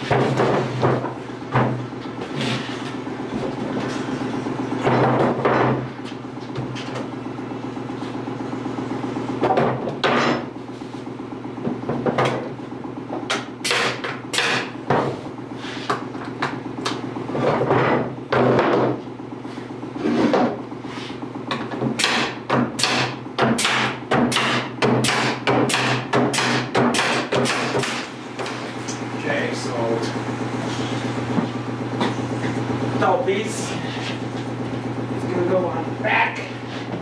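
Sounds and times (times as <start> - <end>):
steady low hum: 0.0 - 37.0
nail gun firing into wood: 22.0 - 28.0.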